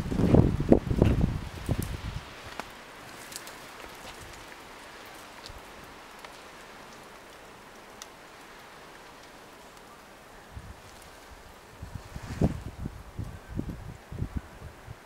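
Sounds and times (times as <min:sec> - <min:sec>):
steady outdoor hiss: 0:00.0 - 0:15.0
faint ticks: 0:02.5 - 0:09.9.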